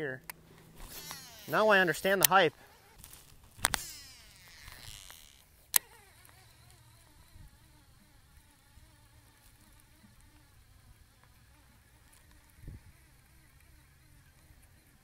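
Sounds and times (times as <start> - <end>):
reel handle cranking whir: 0.0 - 15.0
reel spool whirring: 0.0 - 15.0
reel sharp click: 0.3 - 10.4.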